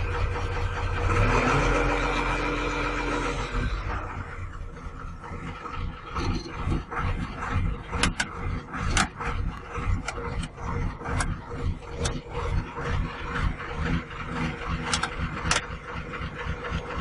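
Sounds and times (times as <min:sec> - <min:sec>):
diesel engine idling: 0:00.0 - 0:17.0.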